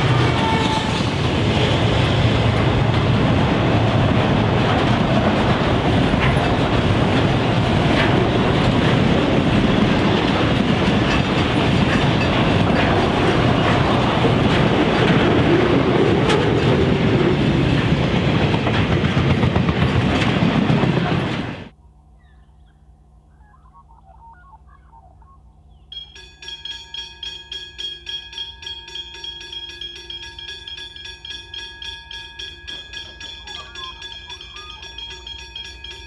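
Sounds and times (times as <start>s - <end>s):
freight train wheels rumbling: 0.0s - 21.8s, 26.1s - 36.0s
wheel clicks and clacks: 4.6s - 21.2s.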